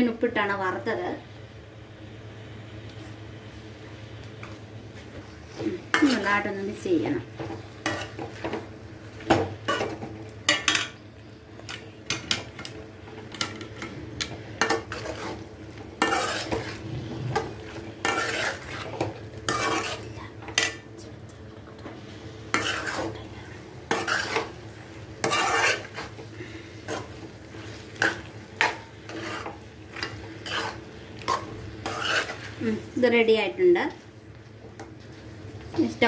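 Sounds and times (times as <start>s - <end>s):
faint sizzle: 0.0s - 36.0s
metal spoon scraping a pan: 14.6s - 15.4s, 16.0s - 20.8s, 22.5s - 23.2s, 23.9s - 24.6s, 25.2s - 26.2s, 26.8s - 32.6s.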